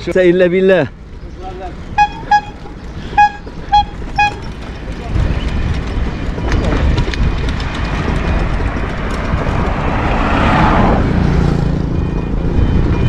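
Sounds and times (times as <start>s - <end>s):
road noise: 0.0s - 13.0s
wind rumbling on microphone: 2.6s - 13.0s.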